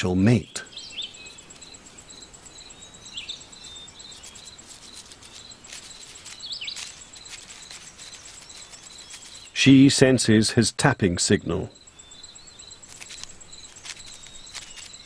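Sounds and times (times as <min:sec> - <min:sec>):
downward-swooping bird chirps: 0:00.0 - 0:15.0
steady hiss: 0:00.0 - 0:15.0
faint ticks: 0:01.2 - 0:09.6, 0:11.8 - 0:15.0.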